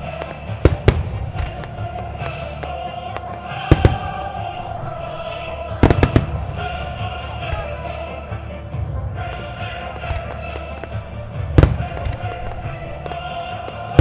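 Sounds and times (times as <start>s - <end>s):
fireworks booming: 0.0s - 8.1s, 9.0s - 14.0s
music: 0.0s - 14.0s.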